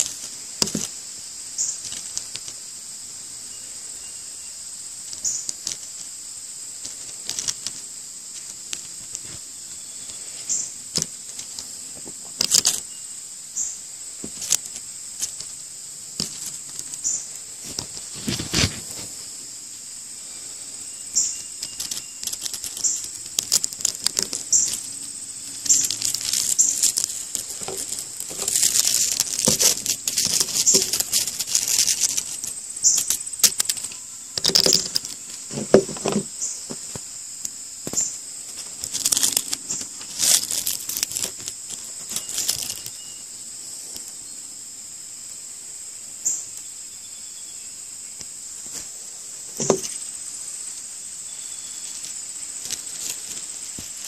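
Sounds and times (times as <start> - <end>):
insects singing: 0.0 - 54.0
knife crunching insect shell: 21.2 - 36.3, 37.9 - 43.0.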